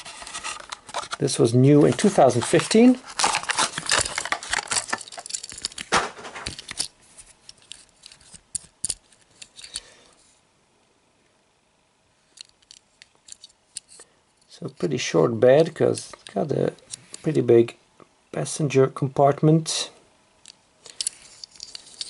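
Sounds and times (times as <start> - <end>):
plastic packaging crackling: 0.0 - 6.7.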